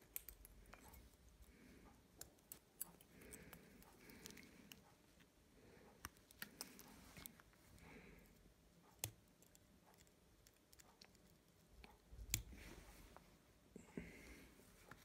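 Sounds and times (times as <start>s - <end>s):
small parts and scissors clicking: 0.0s - 1.5s, 2.1s - 4.9s, 8.2s - 12.6s.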